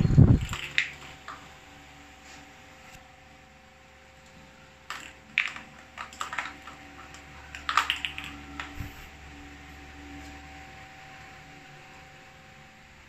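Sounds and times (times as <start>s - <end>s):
plastic toys clicking on tile floor: 0.3s - 1.4s, 4.9s - 8.9s.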